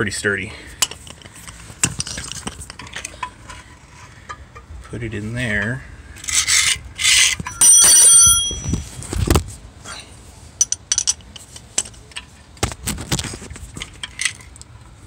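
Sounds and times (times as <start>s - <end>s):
metal tools scraping: 6.2s - 9.0s
loud ringing metal clank: 7.5s - 8.9s.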